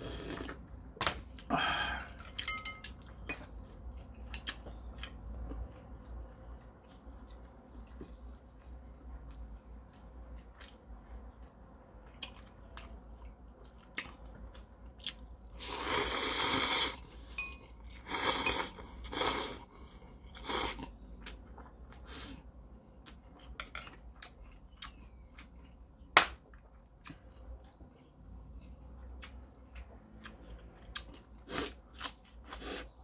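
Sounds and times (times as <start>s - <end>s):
person slurping noodles: 0.0s - 0.6s, 15.6s - 17.1s, 18.0s - 19.7s
chewing: 2.2s - 26.0s, 26.6s - 33.0s.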